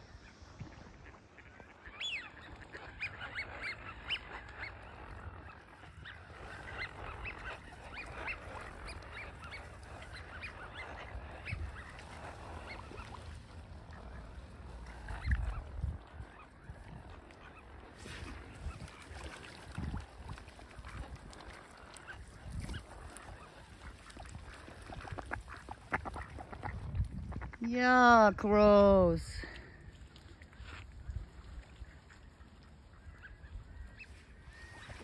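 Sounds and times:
ducks calling: 0.0s - 27.6s.

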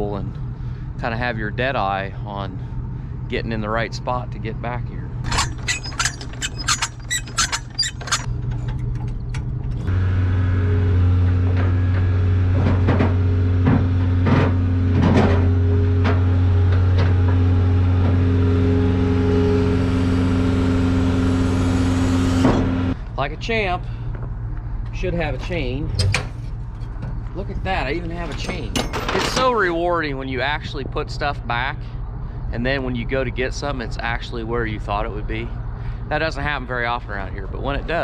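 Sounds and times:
clanks and knocks: 5.2s - 9.9s, 11.5s - 18.2s, 28.2s - 29.6s.

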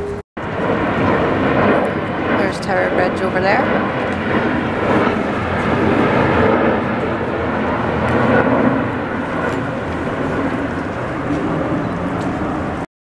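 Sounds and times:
low city rumble: 0.0s - 12.9s.

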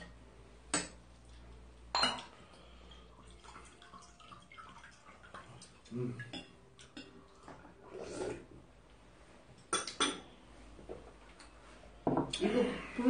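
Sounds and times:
tableware clinking: 1.9s - 2.3s, 9.6s - 10.4s, 12.0s - 12.5s.

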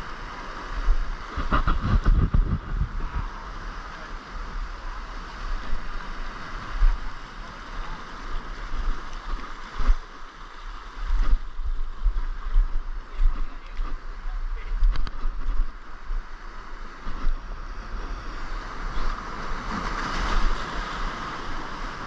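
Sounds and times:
wind buffeting microphone: 0.0s - 7.2s
surf washing over rocks: 0.0s - 22.0s
handling thumps on microphone: 1.3s - 3.1s.

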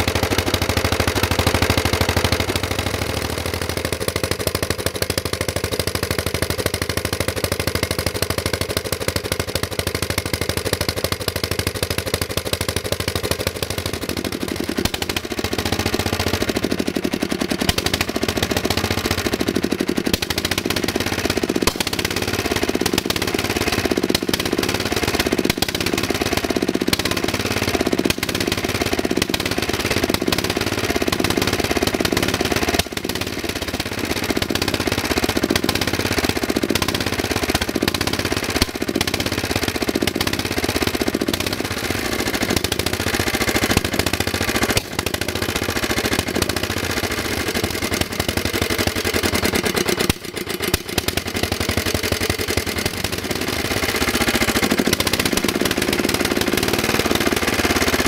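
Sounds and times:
mower engine running: 0.0s - 58.0s.

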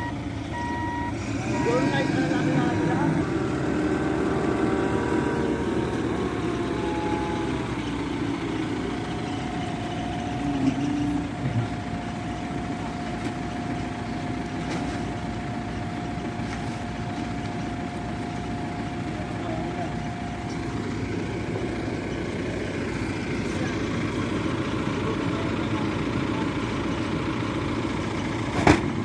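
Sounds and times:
heavy vehicle engine idling: 0.0s - 29.0s.

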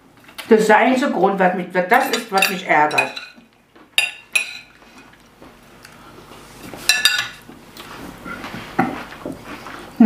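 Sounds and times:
cutlery clinking on plates: 2.0s - 3.4s, 4.0s - 4.7s, 6.9s - 7.4s.

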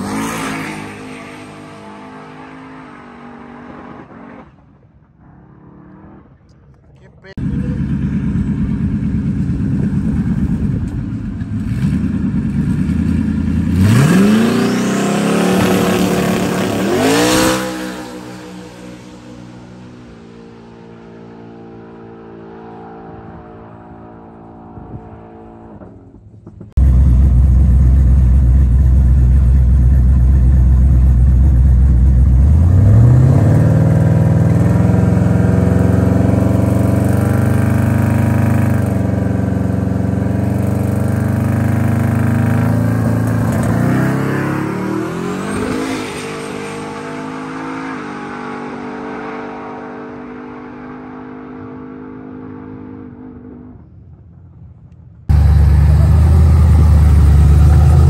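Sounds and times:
truck engine revving: 11.6s - 19.8s, 26.8s - 49.5s, 55.3s - 58.0s.

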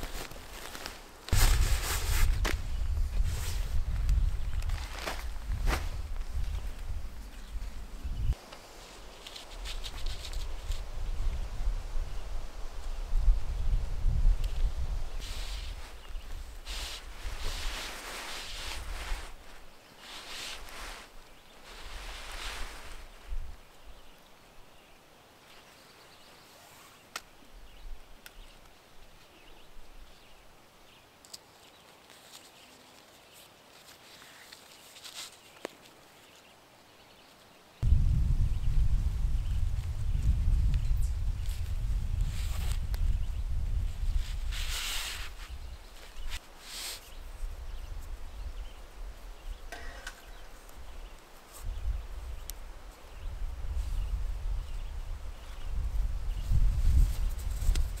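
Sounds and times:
strap rustling: 0.0s - 7.9s
quiet forest background: 0.0s - 58.0s.

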